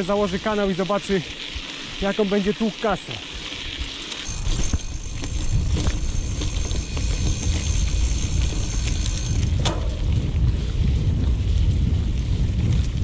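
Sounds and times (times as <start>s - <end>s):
bike tyres and frame rumbling: 0.0s - 13.0s
bike clicks and rattles: 3.4s - 13.0s
wind buffeting microphone: 3.7s - 13.0s.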